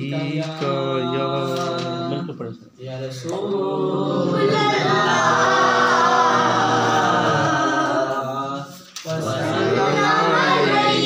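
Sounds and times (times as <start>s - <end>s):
man singing unaccompanied: 0.0s - 3.5s.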